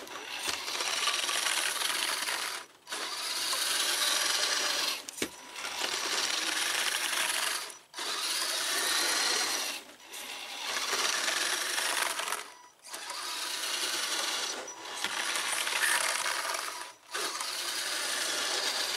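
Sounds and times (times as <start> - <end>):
electric motor whirring: 0.0 - 18.9.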